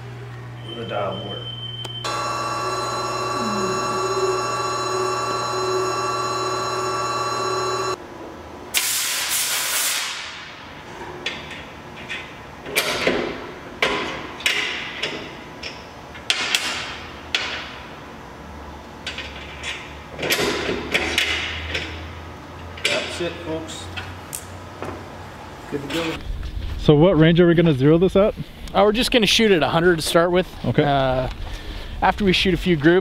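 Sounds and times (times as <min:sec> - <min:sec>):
steady machine hum: 0:00.0 - 0:08.1.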